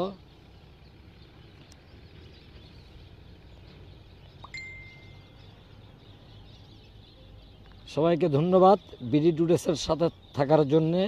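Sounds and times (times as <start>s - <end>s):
faint outdoor background noise: 0.0s - 11.0s.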